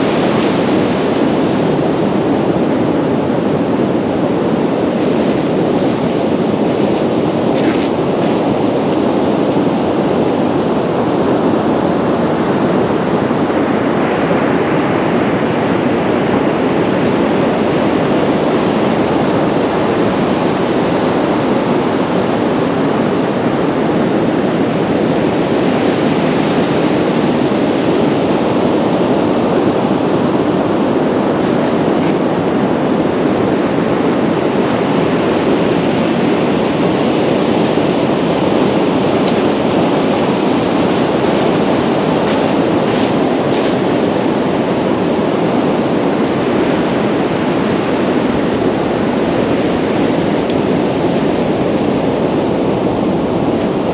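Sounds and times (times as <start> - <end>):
heavy surf breaking: 0.0 - 53.9
wind noise on microphone: 0.0 - 53.9.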